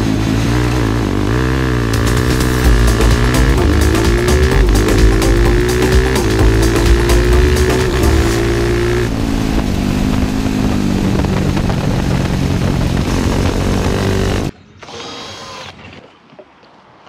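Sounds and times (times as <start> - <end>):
racing motorcycle engine revving: 0.0 - 14.5
wind rush: 7.7 - 14.5.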